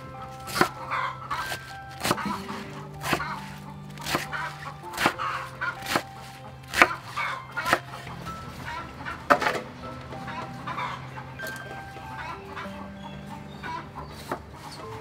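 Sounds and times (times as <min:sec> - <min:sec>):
cleaver chopping on wooden block: 0:01.4 - 0:05.2, 0:05.8 - 0:08.1.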